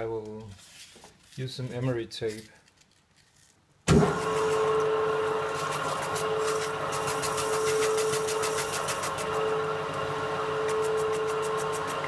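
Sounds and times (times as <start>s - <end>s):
metal lathe humming and whining: 4.3s - 12.0s.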